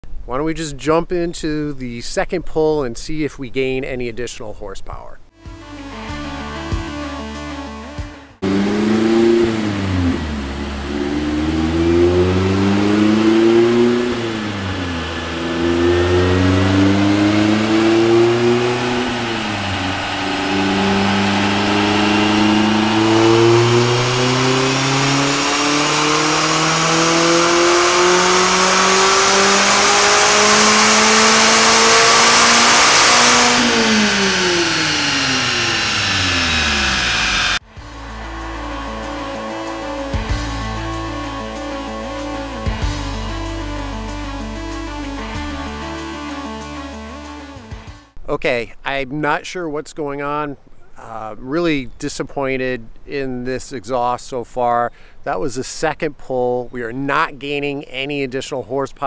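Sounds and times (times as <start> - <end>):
car engine revving on dyno: 8.4 - 43.2.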